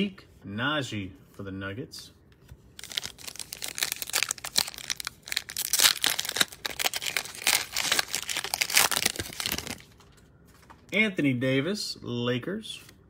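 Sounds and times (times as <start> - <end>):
foil wrapper crinkling: 2.8 - 10.2.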